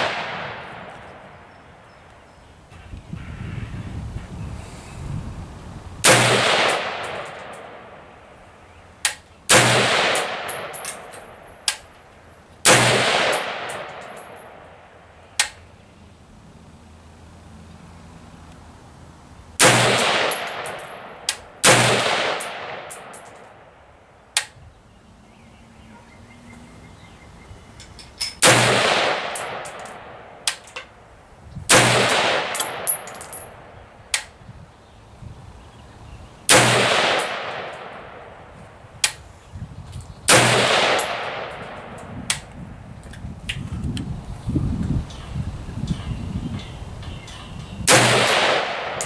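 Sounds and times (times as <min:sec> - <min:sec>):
rifle shots echoing: 0:00.0 - 0:01.4, 0:06.0 - 0:08.2, 0:09.5 - 0:11.9, 0:12.6 - 0:14.9, 0:19.6 - 0:23.7, 0:28.4 - 0:30.6, 0:31.7 - 0:33.6, 0:36.5 - 0:38.4, 0:40.3 - 0:42.0, 0:47.9 - 0:49.0.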